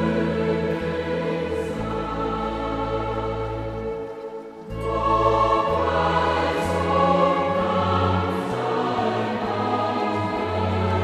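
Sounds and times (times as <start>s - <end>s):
choir singing sustained chords: 0.0s - 11.0s.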